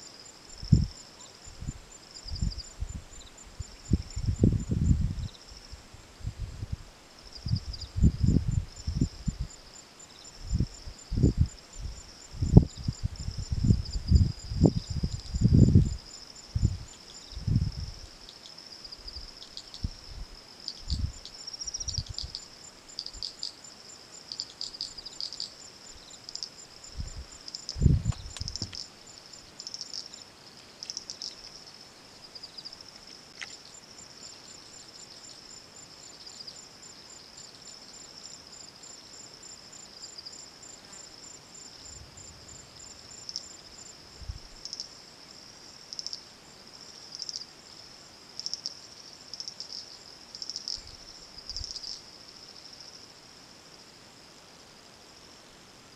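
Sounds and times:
insects trilling: 0.0 - 5.8, 7.2 - 55.4
fast ticking insect call: 7.2 - 53.2
dull low thumps: 27.8 - 28.8.

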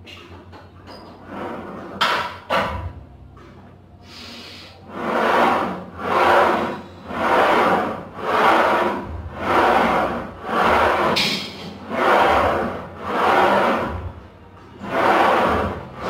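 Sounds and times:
leg press sled rasping on rails: 4.8 - 14.2, 14.8 - 16.0.

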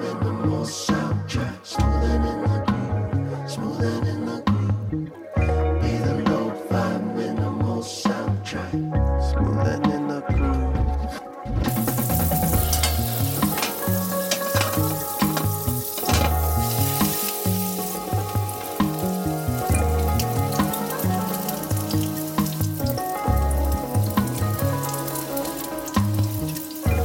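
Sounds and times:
music with bass and drums: 0.2 - 3.3, 3.9 - 27.0
food sizzling in oil: 11.7 - 27.0
oil crackling pops: 11.7 - 27.0.

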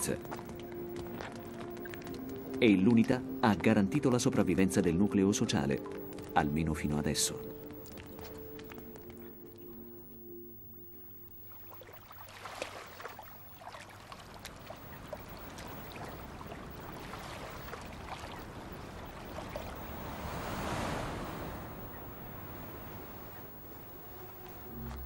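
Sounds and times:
small waves lapping against stones: 11.7 - 21.3.

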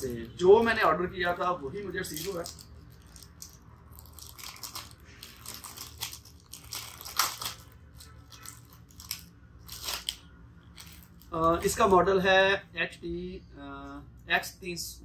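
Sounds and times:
plastic bag crinkling: 0.0 - 11.9.

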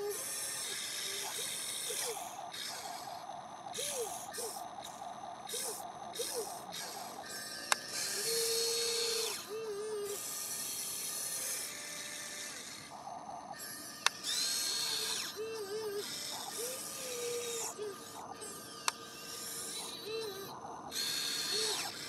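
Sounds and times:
electric motors whirring: 0.0 - 22.0
sharp clicks: 5.6 - 8.2, 14.0 - 15.2, 18.8 - 19.0.

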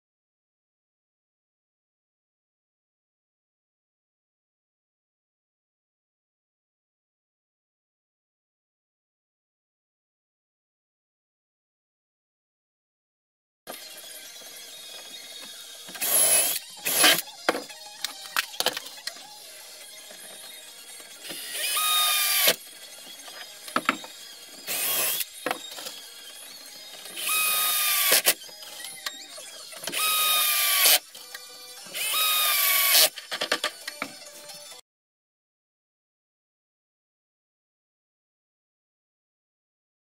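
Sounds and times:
cordless drill motor whine: 13.7 - 34.8.

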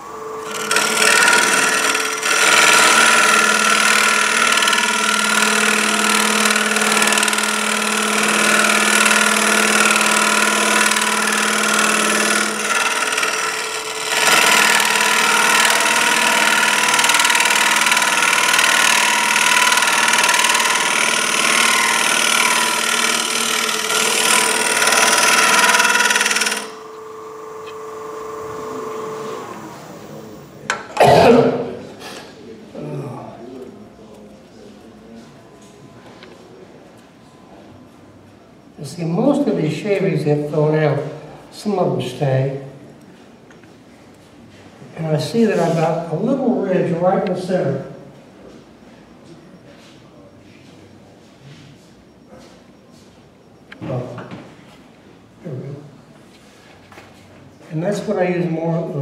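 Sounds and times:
wood lathe whine: 0.0 - 31.7
turning tool cutting wood hiss: 0.2 - 30.3.

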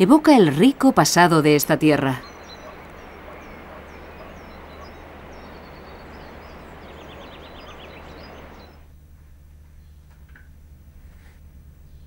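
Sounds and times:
small birds chirping: 0.0 - 8.9
faint low hum: 0.0 - 12.0
outdoor background noise: 0.0 - 12.0
bird rapid trill: 1.6 - 8.8.

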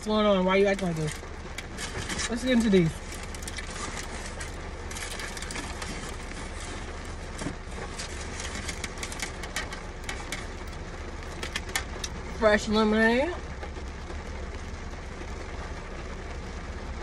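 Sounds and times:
low car cabin rumble: 0.0 - 17.0
paper wrappers crinkling: 0.6 - 12.2.

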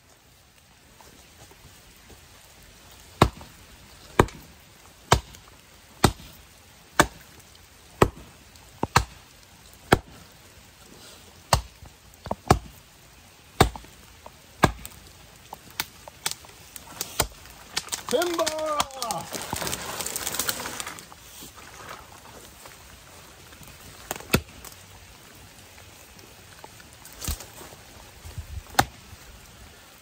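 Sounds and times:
axe chopping wood: 3.2 - 3.5, 4.1 - 4.5, 5.1 - 5.4, 6.0 - 6.4, 7.0 - 7.3, 8.0 - 9.2, 9.8 - 10.2, 11.5 - 12.8, 13.6 - 14.0, 14.6 - 15.0, 17.0 - 18.1, 24.1 - 24.5, 28.7 - 29.0.

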